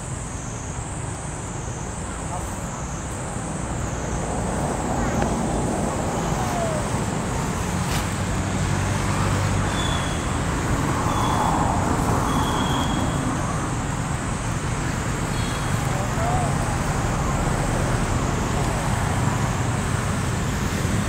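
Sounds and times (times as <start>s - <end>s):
low rumble of road traffic: 0.0s - 21.0s.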